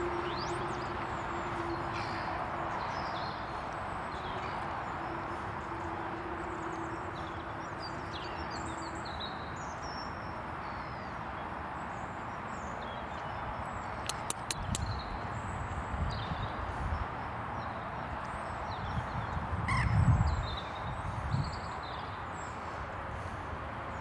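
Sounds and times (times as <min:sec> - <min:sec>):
small birds chirping: 0:11.8 - 0:24.0.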